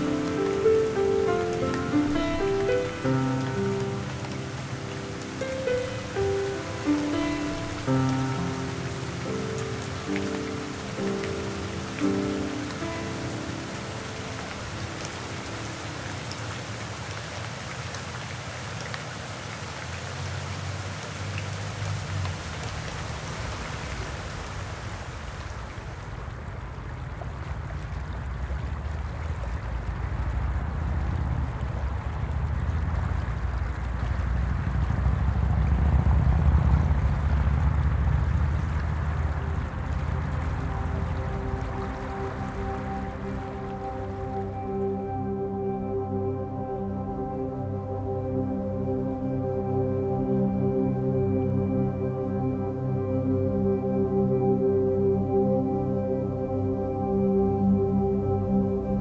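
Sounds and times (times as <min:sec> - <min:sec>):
water drops ticking: 0:00.0 - 0:17.2
rain falling on water: 0:00.0 - 0:59.0
water rushing: 0:00.0 - 0:59.0.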